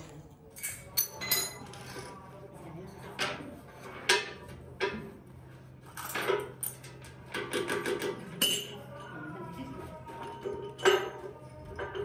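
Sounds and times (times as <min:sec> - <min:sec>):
metal clinking and knocking: 0:00.0 - 0:02.1.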